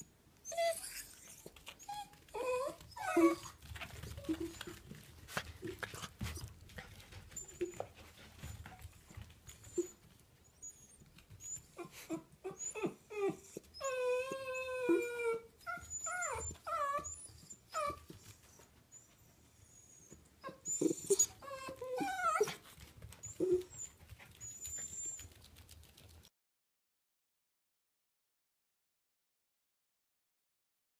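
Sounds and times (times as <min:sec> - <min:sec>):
dog whining and yipping: 0:00.4 - 0:05.0, 0:08.4 - 0:25.4.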